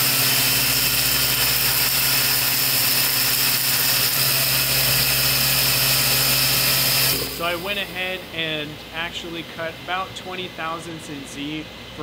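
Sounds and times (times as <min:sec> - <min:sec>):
coolant spraying: 0:00.0 - 0:08.2
milling machine cutting metal: 0:00.0 - 0:08.9.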